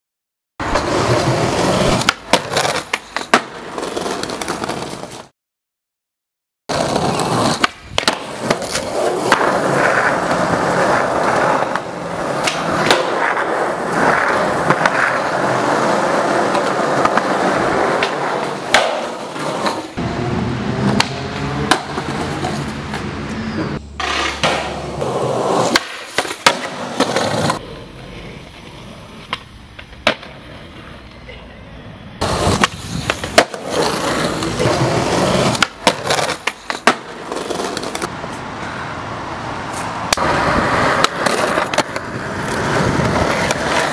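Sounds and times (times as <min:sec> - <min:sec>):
skateboard wheels rolling on concrete: 0:00.6 - 0:05.3, 0:06.7 - 0:43.9
skateboard clacks and slaps: 0:00.7 - 0:05.3, 0:06.7 - 0:20.0, 0:20.8 - 0:23.1, 0:24.0 - 0:27.7, 0:29.2 - 0:31.2, 0:32.3 - 0:38.1, 0:39.8 - 0:43.9.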